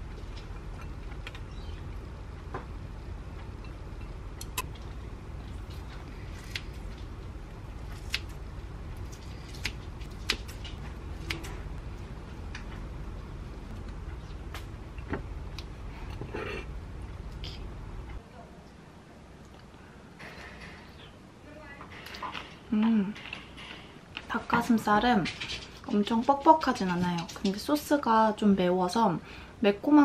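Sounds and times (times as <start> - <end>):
low hum: 0.0 - 23.9.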